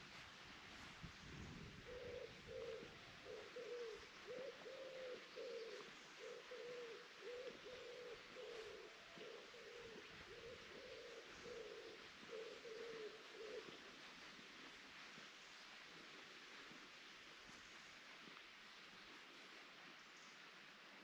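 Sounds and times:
bird cooing: 1.8s - 14.3s.

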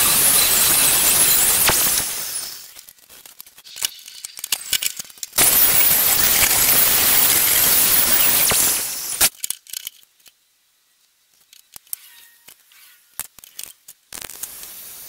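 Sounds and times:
power tool grinding steel: 0.0s - 2.7s.

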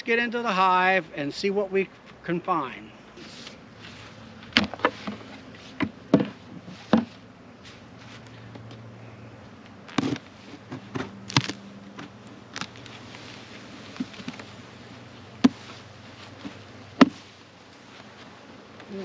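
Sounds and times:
hive tool cracks and knocks: 10.9s - 12.9s.

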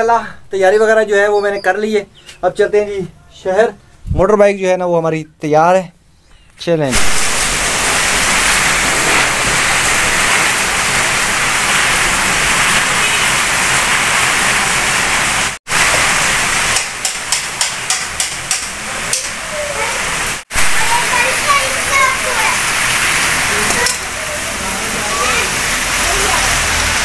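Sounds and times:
heavy rain on street: 7.0s - 27.0s.

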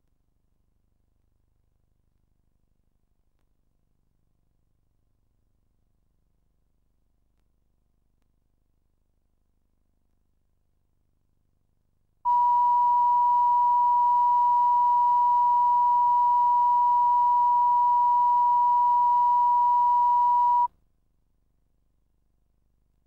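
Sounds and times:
high-pitched test tone beep: 12.3s - 20.7s.

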